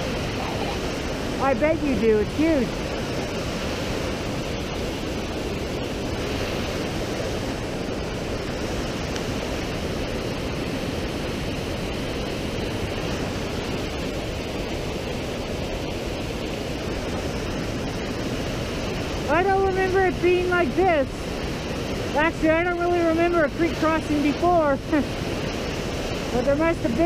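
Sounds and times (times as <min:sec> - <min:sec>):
creek rushing over boulders: 0:00.0 - 0:27.0.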